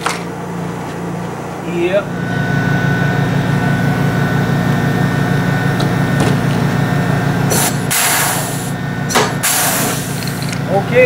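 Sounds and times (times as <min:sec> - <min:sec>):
pulsing low machine hum: 0:00.0 - 0:11.0
rivet gun air hiss: 0:07.5 - 0:08.7, 0:09.4 - 0:10.4.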